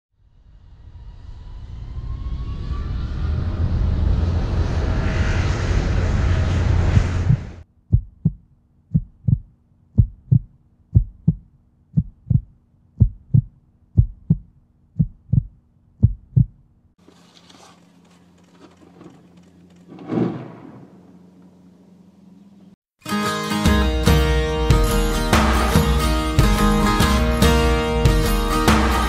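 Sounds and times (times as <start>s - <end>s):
heartbeat thumps: 7.3s - 16.6s.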